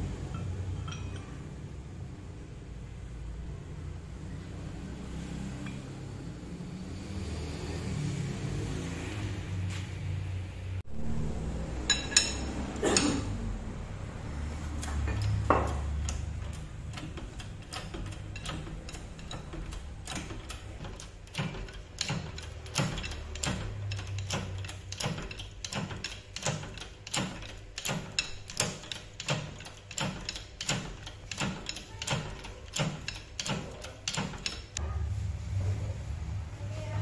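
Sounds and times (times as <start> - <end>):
hydraulic pump clicks: 14.8 - 34.8.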